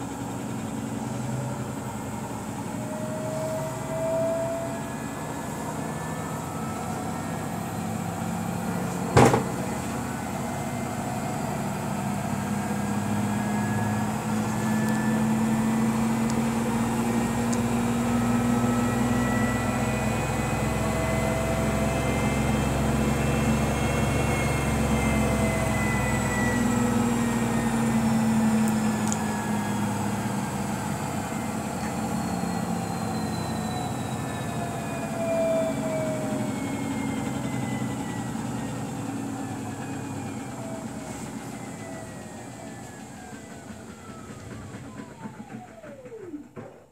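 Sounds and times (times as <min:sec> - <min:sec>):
washing machine drum spinning: 0:08.2 - 0:20.1, 0:37.0 - 0:46.9.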